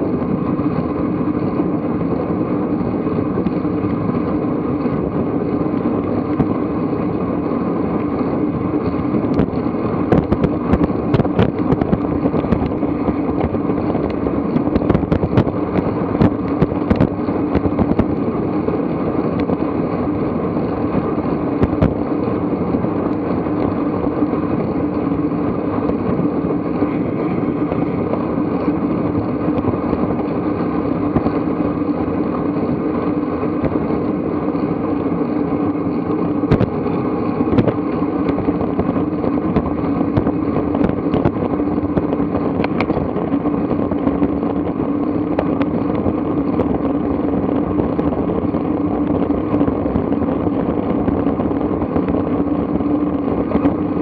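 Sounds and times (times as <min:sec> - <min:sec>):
bicycle tyres on asphalt: 0:00.0 - 0:54.0
wind on microphone: 0:00.0 - 0:54.0
sharp clicks and knocks: 0:42.0 - 0:43.3.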